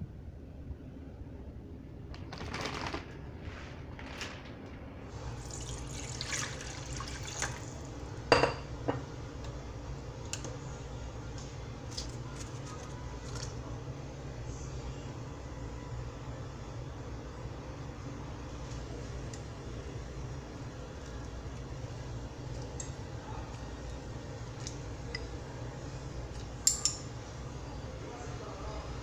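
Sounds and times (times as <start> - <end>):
water pouring into saucepan: 5.1 - 7.9.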